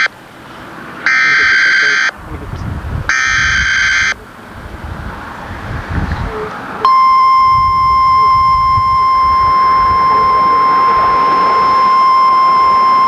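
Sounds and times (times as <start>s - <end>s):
high-pitched alarm beep: 1.1s - 2.1s, 3.1s - 4.2s, 6.8s - 13.0s
low rumbling: 2.1s - 13.0s.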